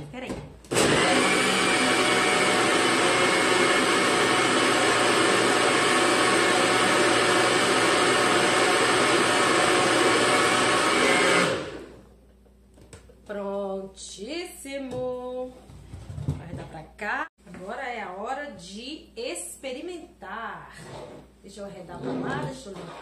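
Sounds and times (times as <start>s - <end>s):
blender motor running: 0.7s - 12.0s.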